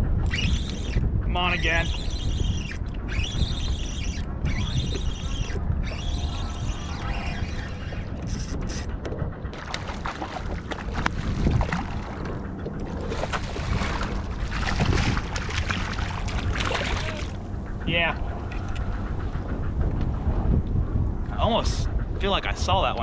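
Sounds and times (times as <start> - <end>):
wind buffeting microphone: 0.0 - 23.0
water sloshing against kayak: 9.5 - 19.7
fish splashing: 9.6 - 17.4.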